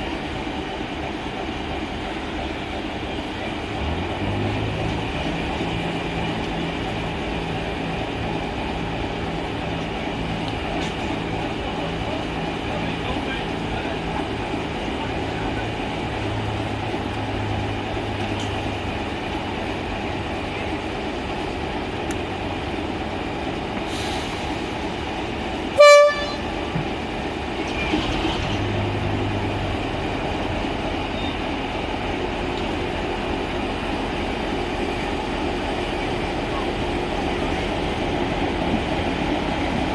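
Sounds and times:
diesel locomotive idling: 0:00.0 - 0:39.9
loud horn blast: 0:25.8 - 0:26.7.

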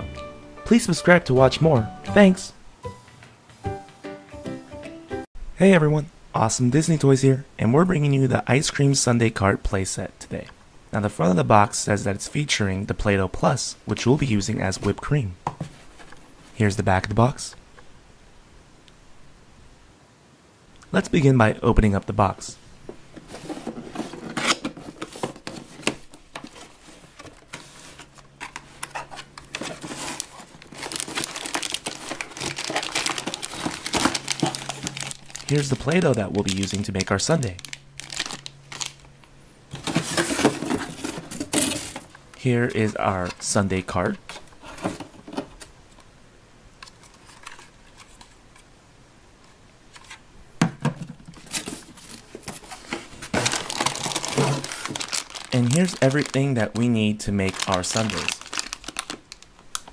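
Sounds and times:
plastic wrapping crinkling: 0:23.3 - 0:43.4, 0:51.4 - 0:59.9.

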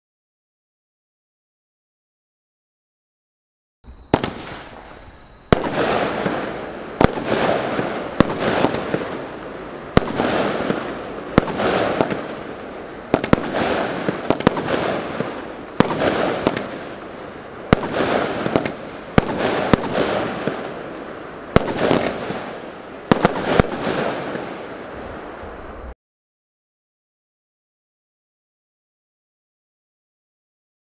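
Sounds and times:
crackling hiss of firework breaks: 0:03.9 - 0:26.0
firework reports: 0:03.9 - 0:26.0.

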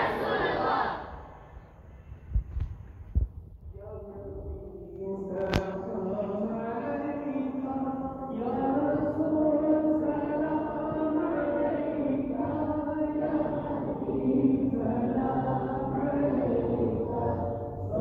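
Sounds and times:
men and boys chanting: 0:00.0 - 0:01.1, 0:05.2 - 0:18.0.

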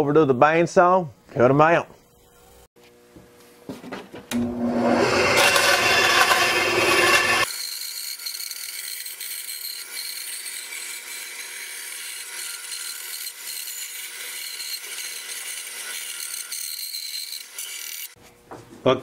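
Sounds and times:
bandsaw cutting wood: 0:04.4 - 0:18.2.

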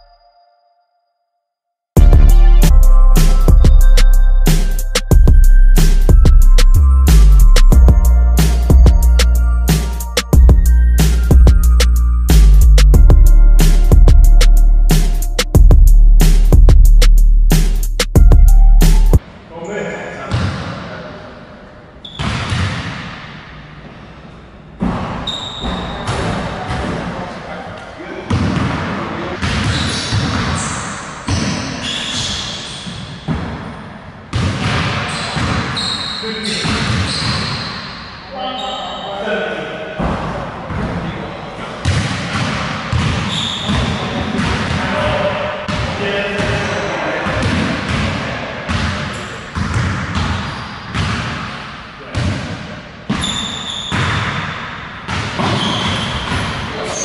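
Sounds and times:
short high squeak: 0:25.2 - 0:26.0, 0:53.2 - 0:54.0
basketballs bouncing on hardwood: 0:28.3 - 0:31.7, 0:34.3 - 0:35.8, 0:36.6 - 0:37.6, 0:41.8 - 0:51.6, 0:55.1 - 0:56.6.

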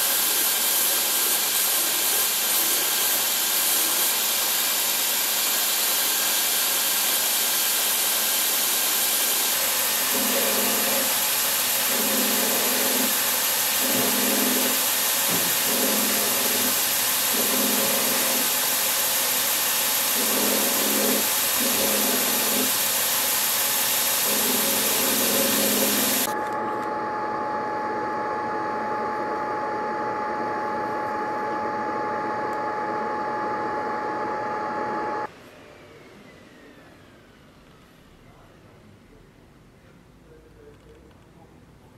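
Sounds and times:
belt grinder grinding metal: 0:00.0 - 0:26.3
machine hum with high whine: 0:08.9 - 0:37.8.

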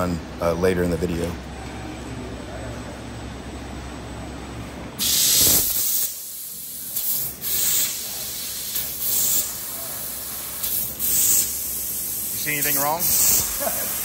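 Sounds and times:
laser cutter gas hissing: 0:05.0 - 0:14.0.

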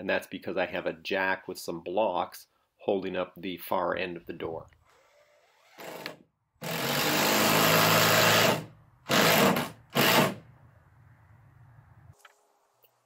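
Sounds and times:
cordless drill driving screw: 0:04.8 - 0:10.4.

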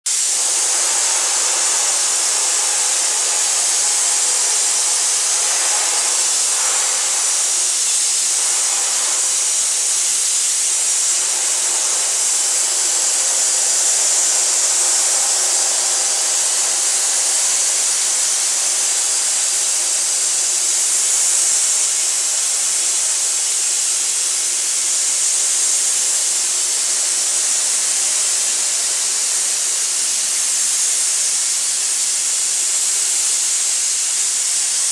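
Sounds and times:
air-abrasive blasting nozzle hissing: 0:00.1 - 0:34.9.

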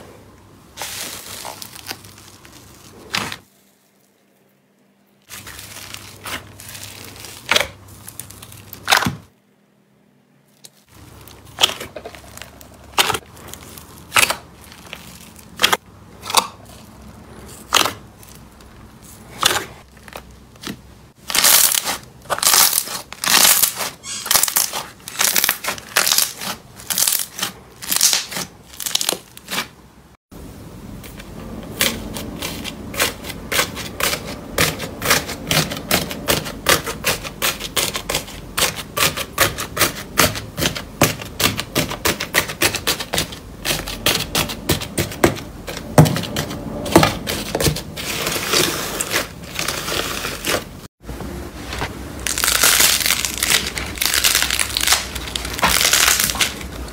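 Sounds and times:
crusted slime crackling by hand: 0:00.7 - 0:04.6, 0:05.2 - 0:09.3, 0:10.5 - 0:29.8, 0:52.2 - 0:56.9.

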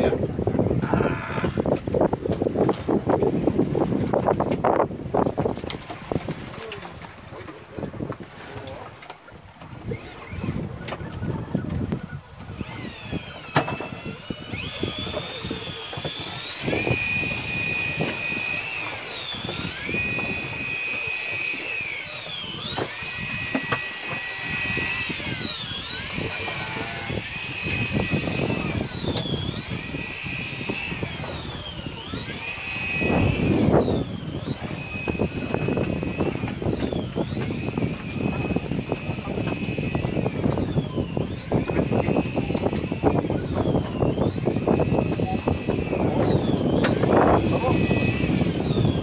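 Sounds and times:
fishing reel motor whining: 0:00.0 - 0:02.6, 0:08.6 - 0:49.0
wind: 0:00.0 - 0:49.0.

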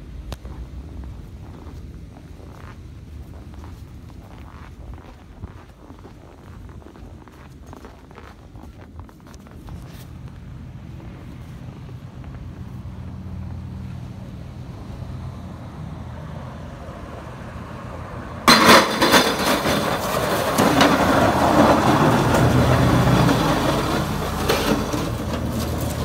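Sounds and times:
tyres on packed snow: 0:00.0 - 0:26.0
car engine rumbling: 0:09.5 - 0:26.0.

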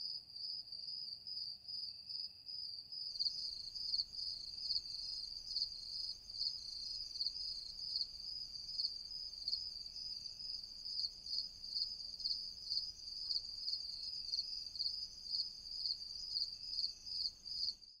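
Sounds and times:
crickets chirping: 0:00.0 - 0:18.0.

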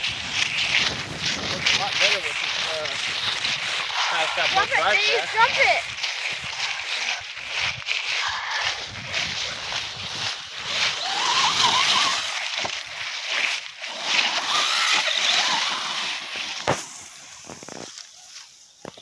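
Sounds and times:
tyre and drivetrain noise: 0:00.0 - 0:19.0
electric motor whine: 0:13.8 - 0:16.8.

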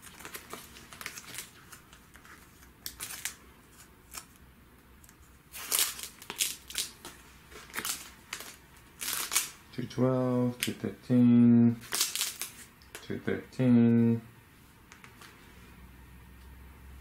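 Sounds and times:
plastic bags rustling: 0:00.0 - 0:04.3, 0:05.5 - 0:09.6.

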